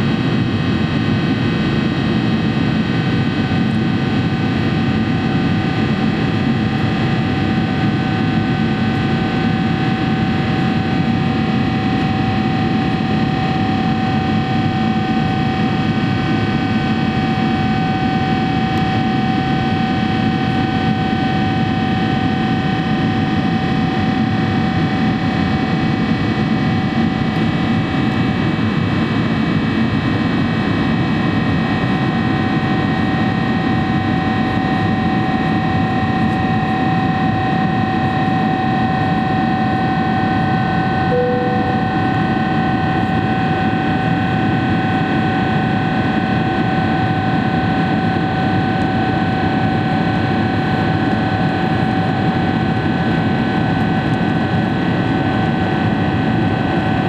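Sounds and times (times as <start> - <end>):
jet engine whine: 0.0 - 57.0
brief lower tone: 41.0 - 43.4.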